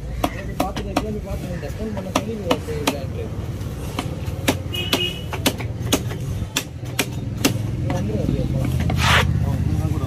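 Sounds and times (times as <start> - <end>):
knife chopping on wooden block: 0.1 - 1.2, 2.0 - 3.1, 3.9 - 9.3.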